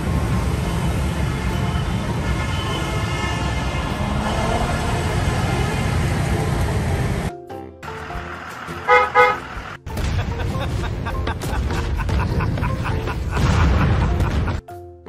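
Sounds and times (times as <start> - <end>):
electric bus passing: 0.0 - 9.8
road and traffic rumble: 0.0 - 11.4
horn toots: 1.2 - 5.8, 8.8 - 9.7.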